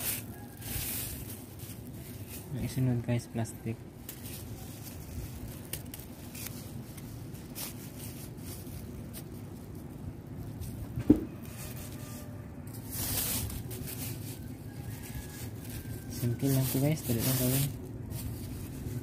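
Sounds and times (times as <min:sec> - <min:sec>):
plastic bag crinkling: 0:00.0 - 0:19.0
single knock: 0:11.0 - 0:11.3.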